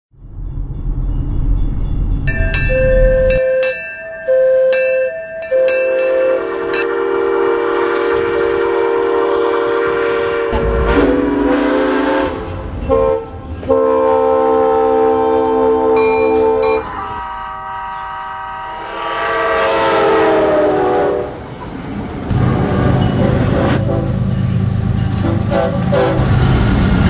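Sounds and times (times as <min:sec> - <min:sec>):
crossing bell clanging: 0:00.2 - 0:07.0, 0:16.0 - 0:18.1, 0:22.9 - 0:23.5
steam locomotive whistle: 0:02.7 - 0:21.4, 0:25.1 - 0:27.0
locomotive air horn blasts: 0:03.0 - 0:21.4, 0:22.3 - 0:24.4, 0:25.1 - 0:26.7.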